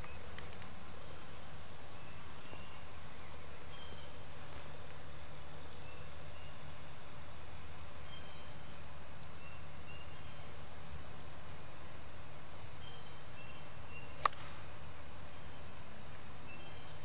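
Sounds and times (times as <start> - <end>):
faint bird chirps: 0.0 - 4.5, 5.4 - 7.1, 8.0 - 11.3, 12.8 - 14.4, 15.3 - 17.0
golf club striking ball: 14.2 - 14.6.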